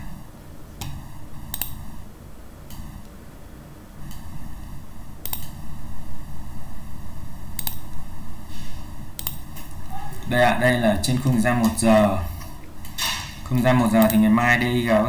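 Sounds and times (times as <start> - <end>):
computer mouse clicks: 0.8 - 1.8, 5.2 - 5.6, 7.6 - 7.8, 9.2 - 9.4.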